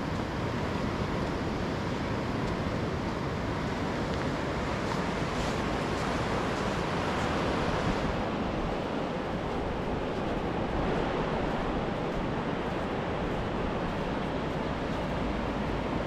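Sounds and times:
wind rumble on microphone: 0:00.0 - 0:16.0
small surf breaking on beach: 0:04.2 - 0:15.7.

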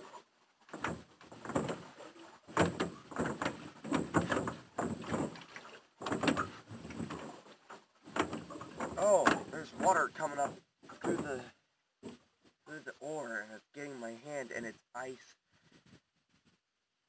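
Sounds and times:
oars knocking in oarlocks: 0:00.0 - 0:12.6
oars pulling through water: 0:00.0 - 0:13.4.

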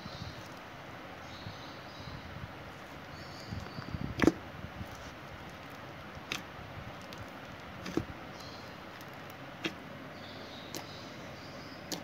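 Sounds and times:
fingers squishing slime: 0:02.8 - 0:09.8, 0:10.7 - 0:11.0.

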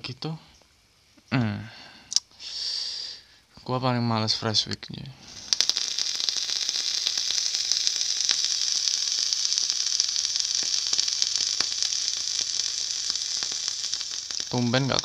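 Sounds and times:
crackles and pops: 0:05.2 - 0:15.0
vape coil sizzling hiss: 0:05.2 - 0:15.0.

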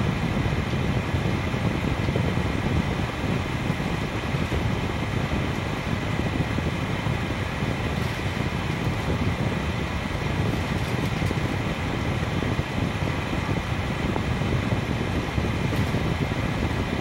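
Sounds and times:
pot boiling and bubbling: 0:00.1 - 0:17.0.

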